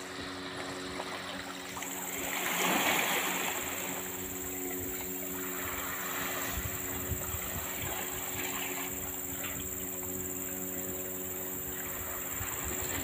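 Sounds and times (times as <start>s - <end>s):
waves washing onto beach: 0.0s - 9.6s
steady low hum: 0.0s - 13.0s.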